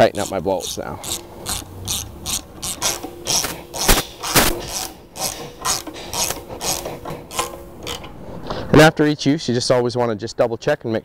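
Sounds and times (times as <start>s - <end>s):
ratchet wrench clicking: 0.0s - 8.2s
sharp metallic knocks: 0.0s - 8.2s.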